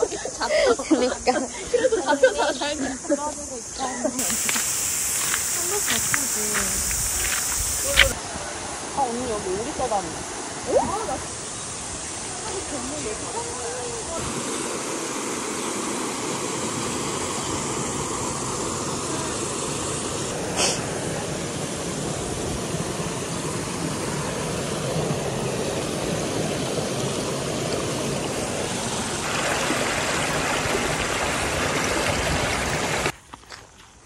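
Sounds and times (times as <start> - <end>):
water rushing over rocks: 4.2 - 11.4, 12.0 - 33.2.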